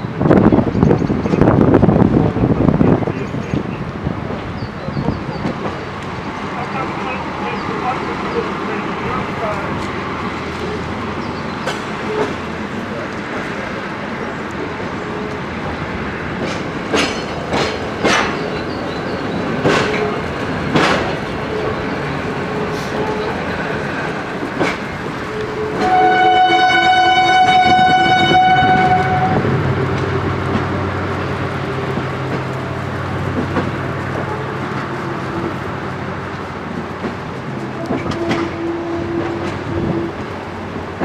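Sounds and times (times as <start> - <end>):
train wheels knocking over rail joints: 16.3 - 18.8, 19.4 - 21.8
train horn blast: 25.3 - 29.6, 37.7 - 40.2.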